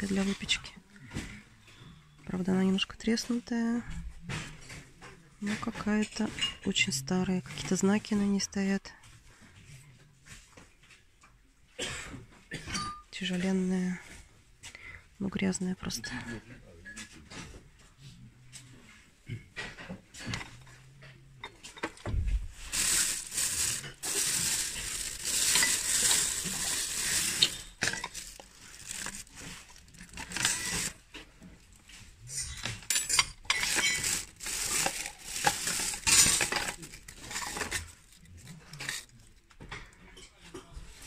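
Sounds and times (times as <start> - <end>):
household goods rustling and shifting: 0.0 - 11.4, 16.9 - 41.0
dishes and cutlery clinking: 12.5 - 13.1, 22.7 - 31.2, 31.9 - 38.0.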